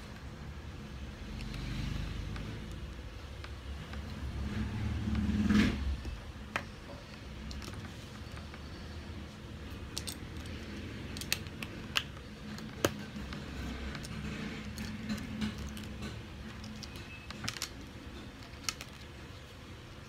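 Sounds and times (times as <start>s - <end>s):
plastic bricks clicking and clattering: 6.5s - 8.6s, 9.8s - 19.3s.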